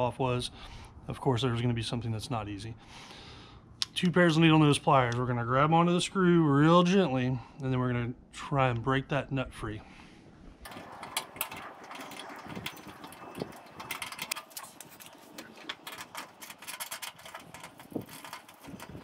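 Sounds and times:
faint scraping: 0:10.7 - 0:19.0.

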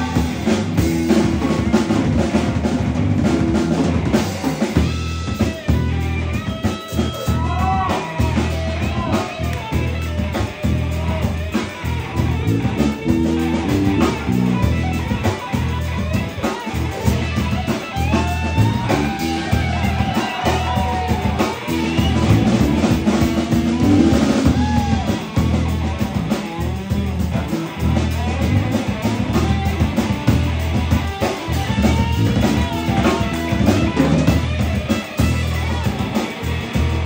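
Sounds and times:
bass guitar: 0:00.0 - 0:37.0
drums: 0:00.0 - 0:37.0
electric guitar solo: 0:00.0 - 0:37.0.

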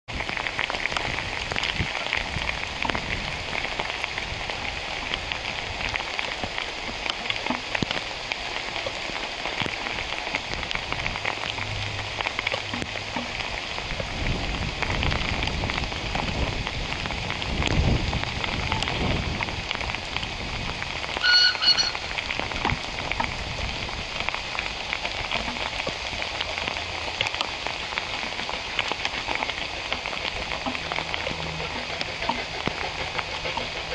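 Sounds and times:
heavy rain falling: 0:00.1 - 0:33.9
short high whistle: 0:21.2 - 0:22.1.

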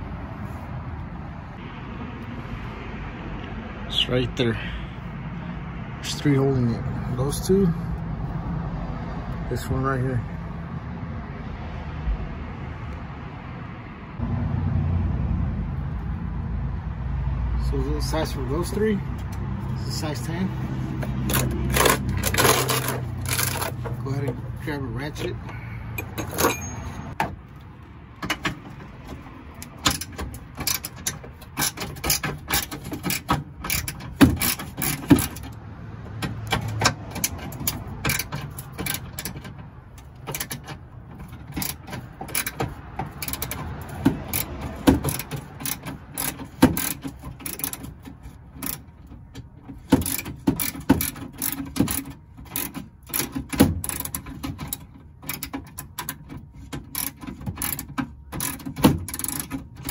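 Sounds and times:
hand ratchet clicking: 0:21.0 - 0:23.9, 0:29.5 - 0:35.6, 0:36.2 - 0:59.9.

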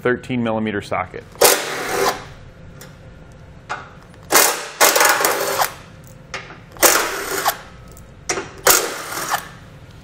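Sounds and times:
cordless driver spinning bolts: 0:06.8 - 0:07.6.

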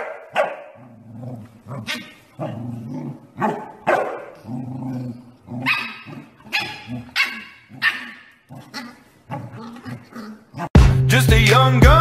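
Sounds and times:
dogs barking: 0:00.0 - 0:00.9, 0:01.8 - 0:04.6, 0:05.6 - 0:10.8
dog growling: 0:00.8 - 0:10.8.

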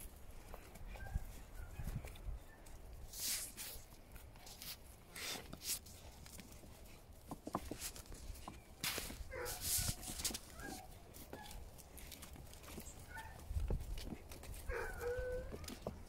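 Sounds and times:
dog sniffing: 0:08.9 - 0:13.2.

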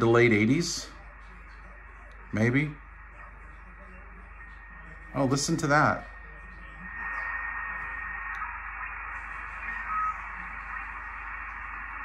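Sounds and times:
radio receiver hiss: 0:00.0 - 0:12.0
steady whistle: 0:06.9 - 0:12.0
brief tone: 0:09.6 - 0:10.4.

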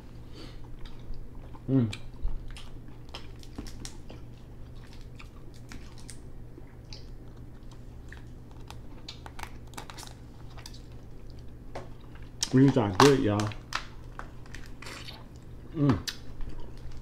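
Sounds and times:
faint low hum: 0:00.0 - 0:17.0
person chewing: 0:00.2 - 0:12.6, 0:13.5 - 0:17.0
crab shell clicks and crackles: 0:12.4 - 0:14.7.

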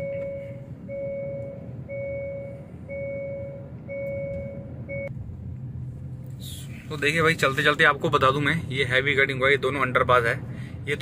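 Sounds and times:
electronic warning beeps: 0:00.0 - 0:05.1
car cabin road rumble: 0:00.0 - 0:11.0.

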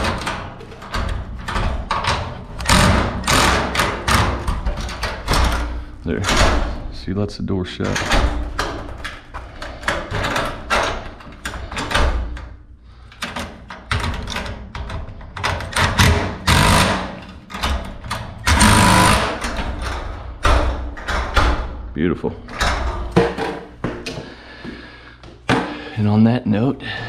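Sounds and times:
impact driver hammering: 0:02.6 - 0:04.6, 0:15.9 - 0:17.2, 0:18.4 - 0:19.6.

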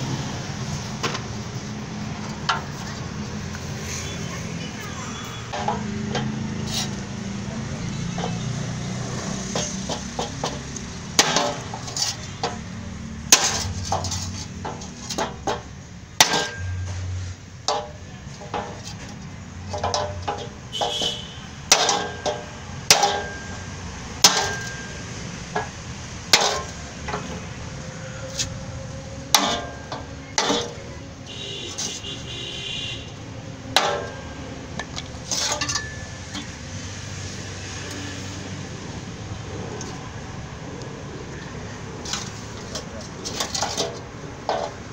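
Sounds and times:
hammer striking steel through wood: 0:09.4 - 0:11.9, 0:14.7 - 0:17.1, 0:19.8 - 0:27.3, 0:29.3 - 0:31.6, 0:33.7 - 0:34.4.

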